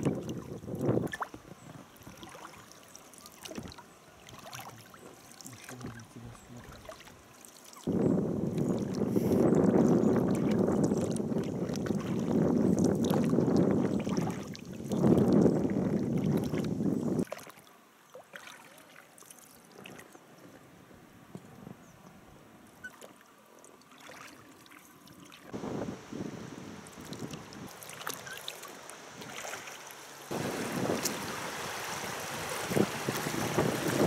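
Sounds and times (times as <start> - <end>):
wind rushing over microphone: 0.0 - 1.7, 7.9 - 17.2, 25.5 - 27.8, 30.3 - 34.0
water lapping: 0.0 - 34.0.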